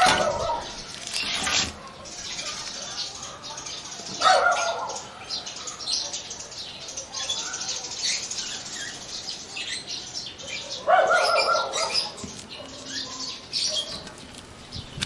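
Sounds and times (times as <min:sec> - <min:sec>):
plastic film crinkling: 0:00.4 - 0:02.7.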